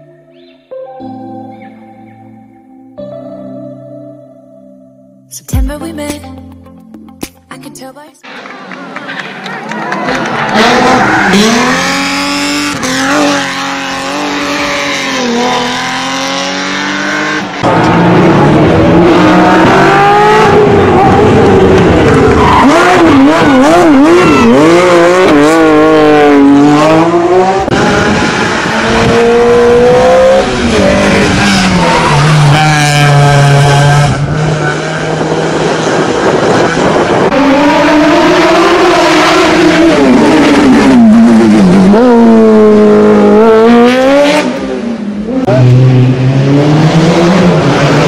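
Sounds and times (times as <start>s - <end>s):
race car engines at high revs: 10.0s - 48.0s.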